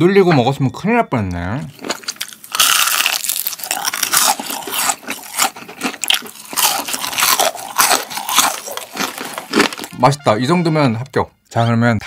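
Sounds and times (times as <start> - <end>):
crunchy chewing: 1.7 - 10.0.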